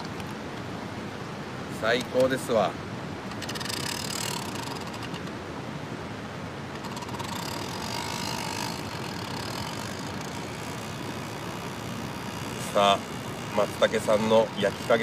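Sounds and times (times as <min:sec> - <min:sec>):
steady background hiss: 0:00.0 - 0:15.0
hand grinder ratcheting: 0:03.3 - 0:05.4, 0:06.8 - 0:15.0.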